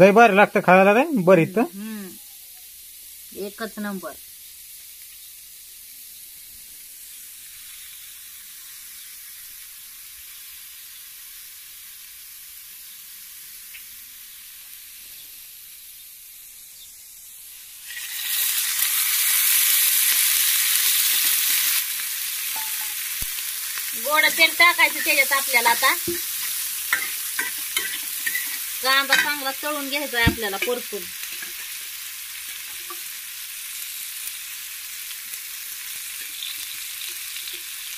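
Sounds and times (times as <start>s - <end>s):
onions sizzling in a pan: 0.0s - 37.9s.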